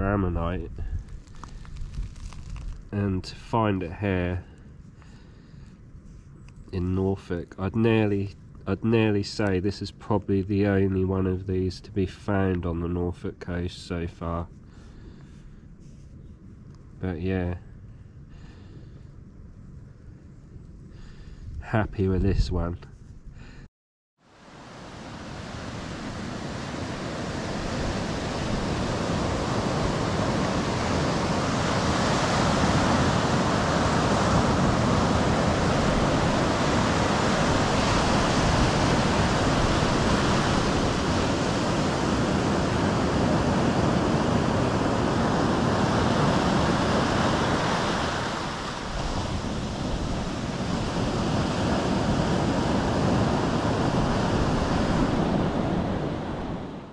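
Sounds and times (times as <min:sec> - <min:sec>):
sea surf breaking on beach: 0:24.3 - 0:56.9.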